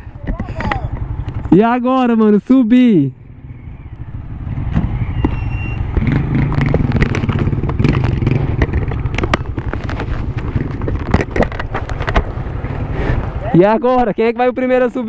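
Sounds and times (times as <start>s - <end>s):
motorcycle engine running: 0.0s - 2.3s, 3.1s - 13.5s.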